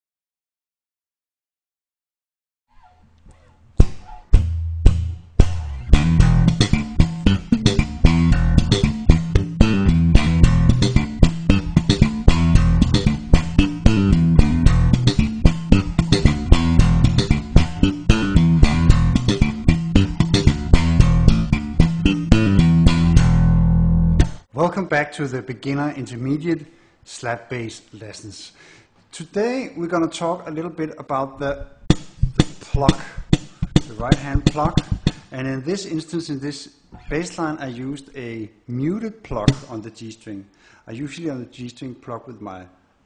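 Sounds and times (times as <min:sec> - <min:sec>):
slap bass guitar: 0:02.8 - 0:24.5, 0:31.4 - 0:35.4, 0:37.0 - 0:37.5, 0:39.3 - 0:39.8.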